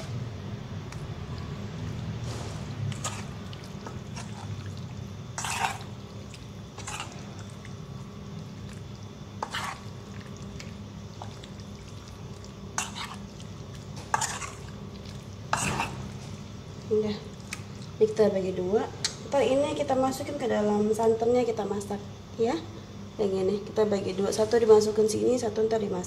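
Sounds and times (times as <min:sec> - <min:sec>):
wet squelches of kneading meat: 0:00.0 - 0:18.3.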